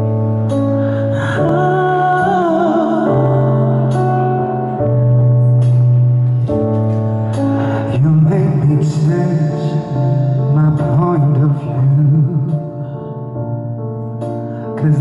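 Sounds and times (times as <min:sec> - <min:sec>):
instrumental backing: 0:00.0 - 0:15.0
man singing pop ballad: 0:07.3 - 0:13.1, 0:14.5 - 0:15.0.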